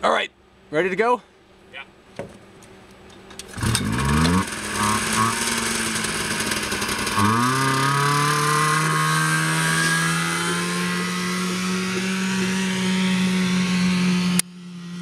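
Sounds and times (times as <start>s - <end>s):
snowmobile engine running: 3.5s - 15.0s.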